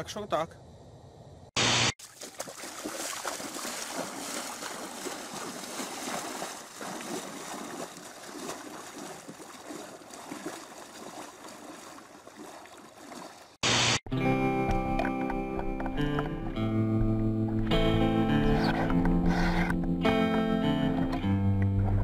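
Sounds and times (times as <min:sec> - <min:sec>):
river water splashing around legs: 0:02.0 - 0:13.6.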